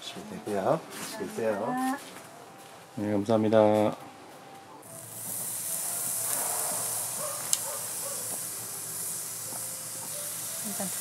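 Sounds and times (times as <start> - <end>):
meat sizzling on grill plate: 4.8 - 11.0.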